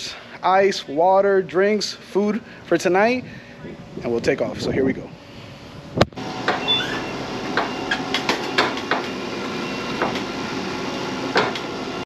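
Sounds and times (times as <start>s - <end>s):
boat lift motor running: 6.0s - 12.0s
knocks and clanks of lift: 11.3s - 11.7s.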